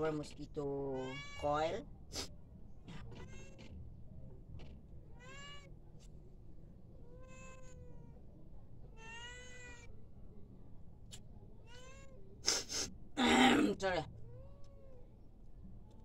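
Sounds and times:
cat meowing: 1.0s - 1.7s, 5.2s - 5.7s, 7.0s - 8.2s, 8.9s - 9.9s, 11.6s - 12.2s.

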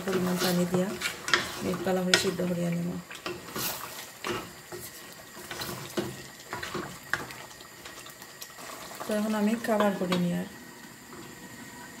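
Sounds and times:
spatula scraping pot: 0.0s - 2.5s, 3.1s - 7.3s
spatula stirring sauce in pot: 0.0s - 9.1s.

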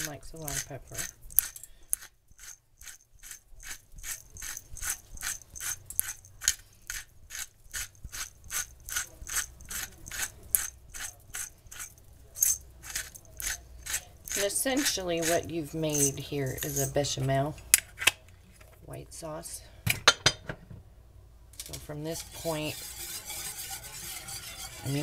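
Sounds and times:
pepper mill grinding: 0.0s - 17.3s.

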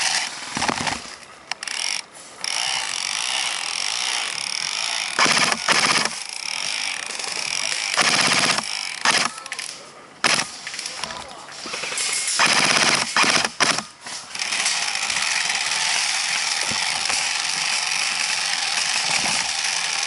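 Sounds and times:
airsoft rifle firing bursts: 5.2s - 6.2s, 7.9s - 9.4s, 10.2s - 10.6s, 11.8s - 13.9s.

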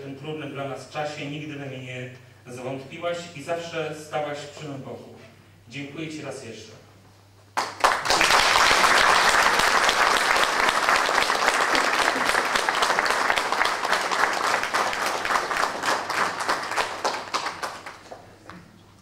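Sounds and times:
audience applauding: 7.6s - 18.4s.

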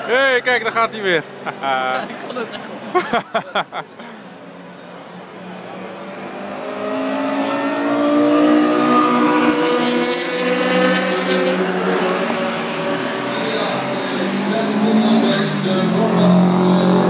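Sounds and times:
car engine at high revs: 5.5s - 17.0s.

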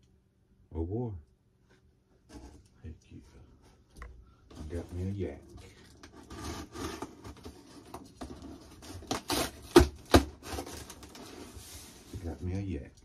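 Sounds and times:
cardboard flaps rustling and scraping: 6.2s - 12.5s.

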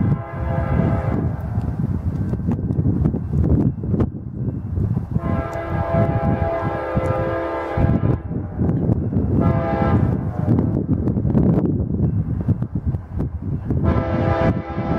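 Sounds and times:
train horn blasts: 0.0s - 1.4s, 5.2s - 8.7s, 9.3s - 10.7s, 13.8s - 14.9s.

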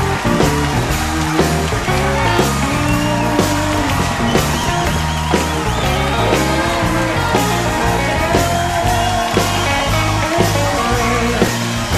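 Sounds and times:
rock music with drums and bass: 0.0s - 11.9s.

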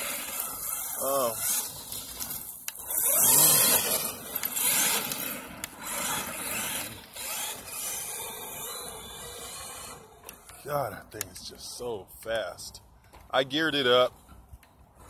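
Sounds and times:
tyres throwing dirt: 0.0s - 9.9s
electric motor whine: 0.0s - 10.7s.

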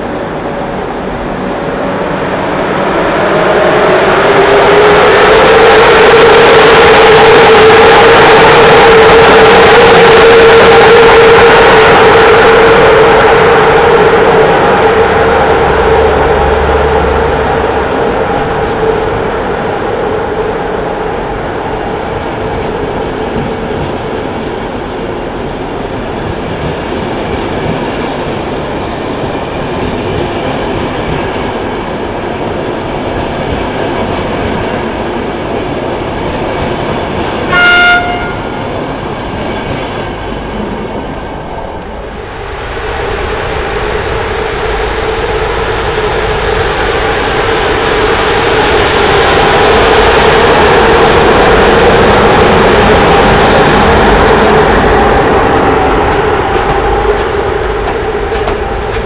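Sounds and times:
train coaches rumbling on rails: 0.0s - 59.0s
locomotive horn blast: 37.5s - 38.6s.

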